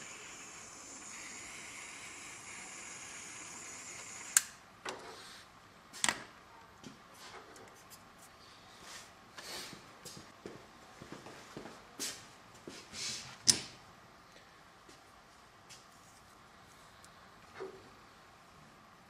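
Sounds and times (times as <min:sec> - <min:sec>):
butane heat tool hissing: 0:00.0 - 0:04.4.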